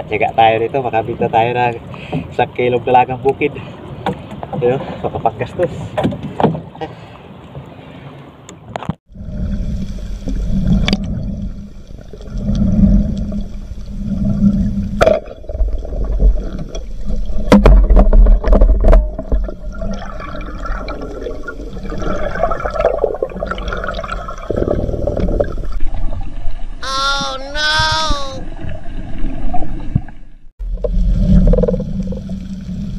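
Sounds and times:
underwater rumble and bubbling: 8.7 - 26.8, 28.4 - 32.9.

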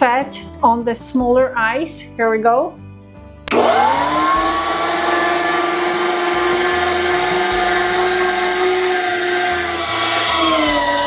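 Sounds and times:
electric meat grinder motor whine: 3.5 - 11.0.

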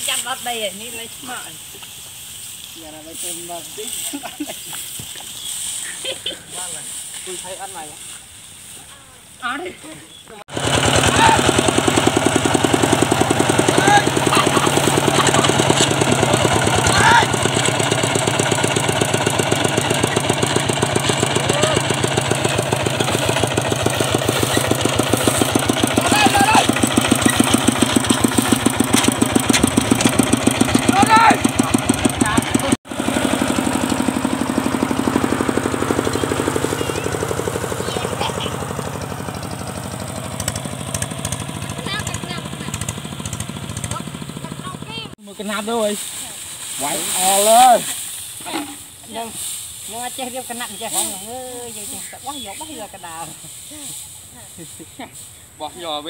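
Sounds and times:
diesel tractor engine chugging: 10.5 - 45.9.

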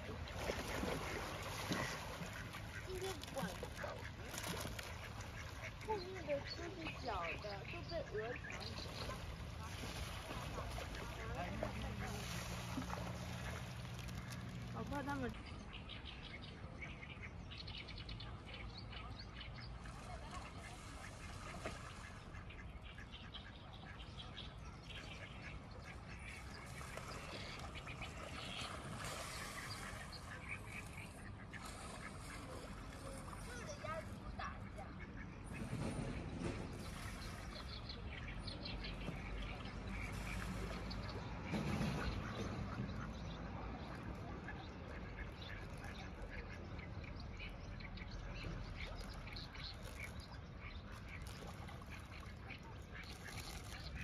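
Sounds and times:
ducks and geese calling: 0.3 - 16.0, 20.2 - 38.2.

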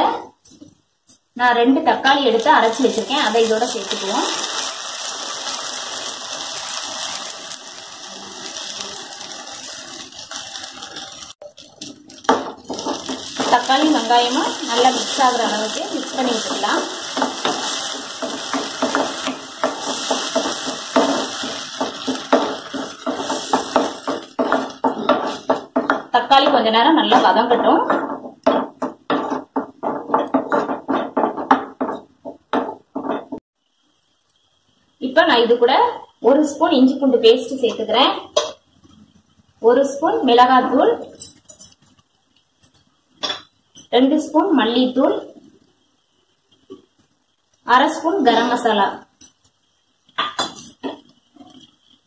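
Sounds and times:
onions sizzling in hot oil: 2.0 - 27.6, 43.7 - 52.0
spatula scraping in a pan: 2.7 - 26.0.

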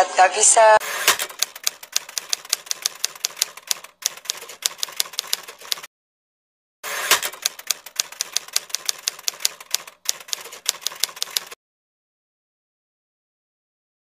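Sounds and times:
typewriter key clacks: 7.1 - 11.6.

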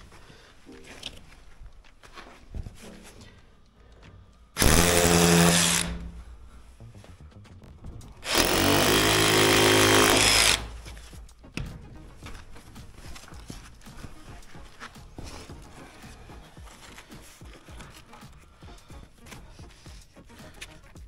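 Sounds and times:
power tool motor whining: 4.6 - 6.4, 8.2 - 10.8.

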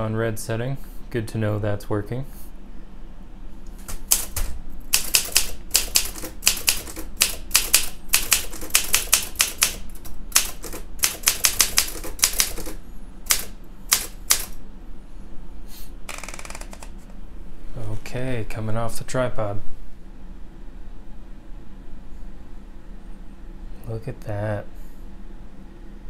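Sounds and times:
manual typewriter typing: 3.8 - 14.6, 16.1 - 17.0.

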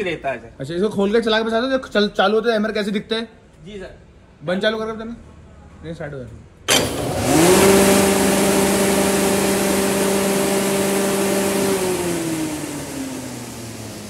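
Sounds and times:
hammer mill running: 6.7 - 14.0.

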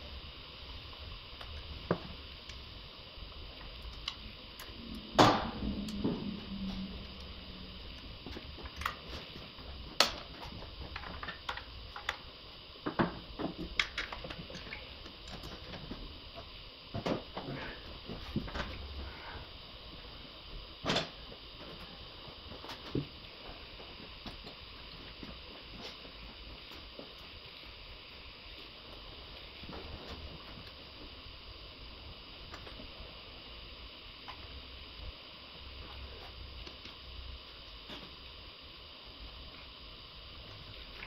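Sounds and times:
steady hiss: 0.0 - 41.0.

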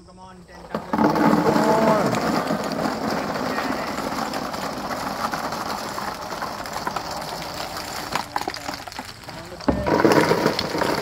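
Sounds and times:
plastic balls pouring and rattling: 0.6 - 11.0
balls bouncing on floor: 0.7 - 11.0.

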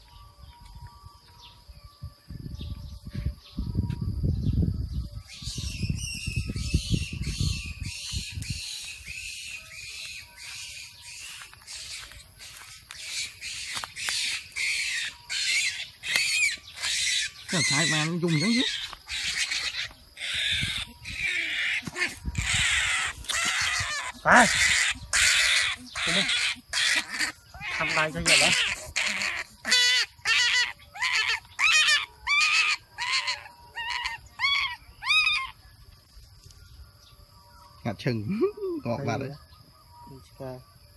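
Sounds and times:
rabbit squealing: 5.3 - 35.6
scuffling in dirt and dry leaves: 7.9 - 20.1.

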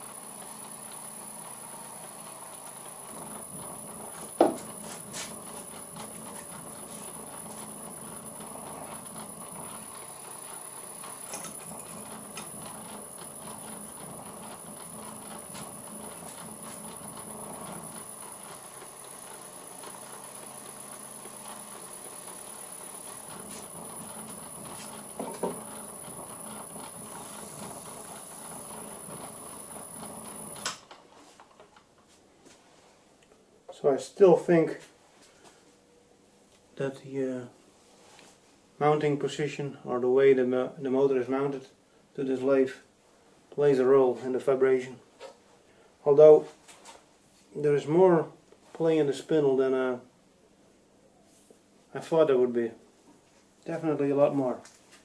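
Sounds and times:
lathe running: 0.0 - 30.8.

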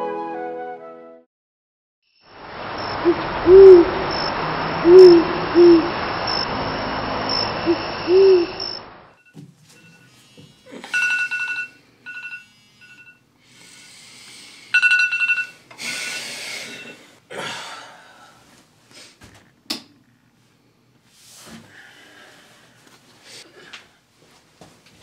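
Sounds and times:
phone beeping: 10.9 - 13.2, 14.8 - 16.2.

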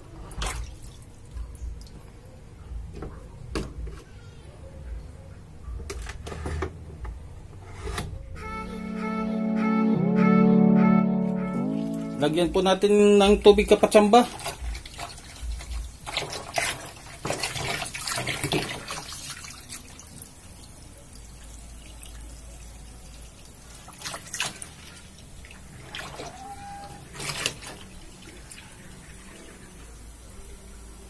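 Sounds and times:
water pouring into washing machine: 0.0 - 1.2, 13.4 - 30.6
splashes and knocks: 0.3 - 1.0, 14.3 - 19.8.

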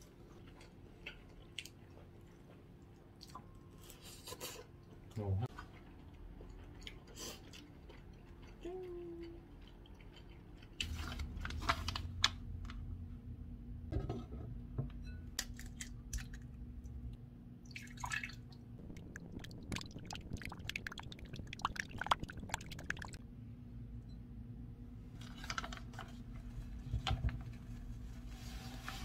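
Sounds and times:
water splash: 17.8 - 23.2.

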